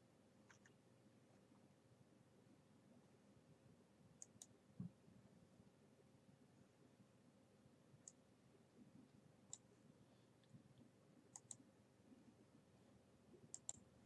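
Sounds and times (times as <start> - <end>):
computer mouse clicks: 0.5 - 0.8, 4.2 - 4.6, 9.5 - 9.7, 11.3 - 11.6, 13.5 - 13.9.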